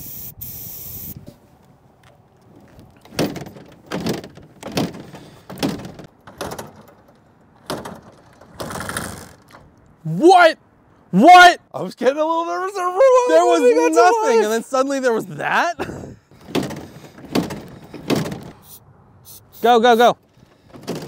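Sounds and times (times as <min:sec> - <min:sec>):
motorcycle kickstarter strokes: 0:02.4 - 0:09.8, 0:16.4 - 0:18.6, 0:20.2 - 0:21.0.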